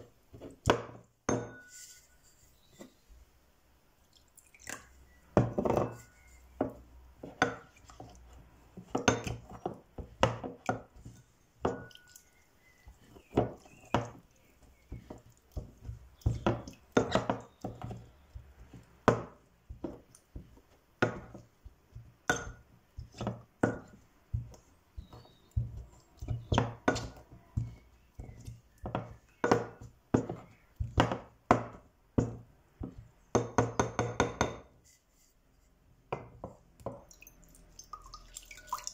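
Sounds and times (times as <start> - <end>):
wooden pestle knocking ceramic bowl: 14.9 - 20.0, 21.0 - 34.7.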